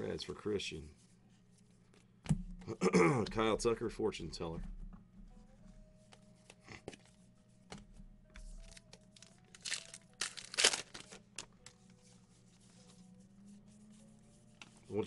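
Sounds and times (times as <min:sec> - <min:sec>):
plastic packaging crinkling: 0:08.6 - 0:11.8.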